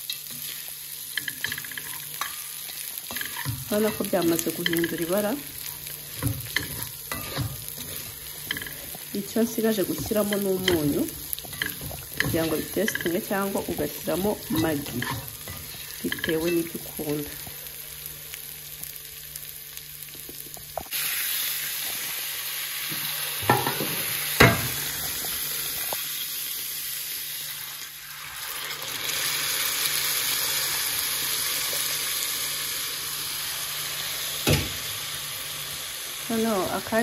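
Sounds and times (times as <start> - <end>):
loud sizzle in pot: 0.0 - 37.0.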